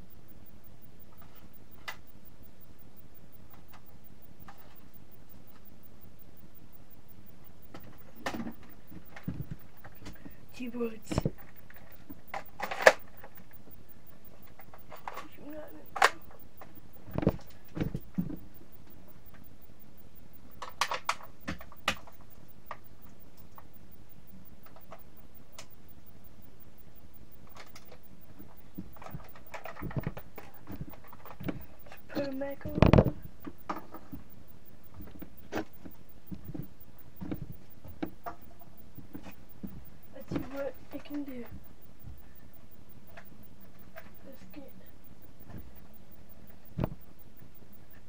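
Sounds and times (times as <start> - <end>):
plastic toy blaster clicks and knocks: 11.2 - 13.3.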